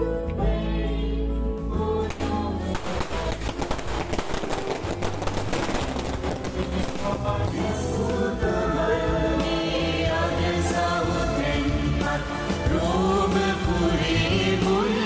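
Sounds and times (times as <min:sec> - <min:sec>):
music with singing: 0:00.0 - 0:15.0
firecrackers cracking: 0:02.1 - 0:07.5.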